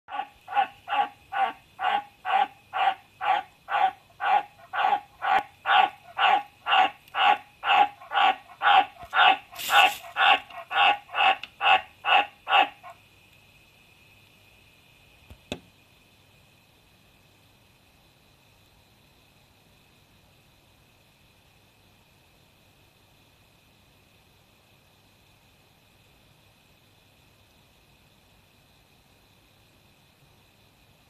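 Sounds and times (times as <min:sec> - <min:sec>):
tree frog croaking: 0:00.1 - 0:13.0.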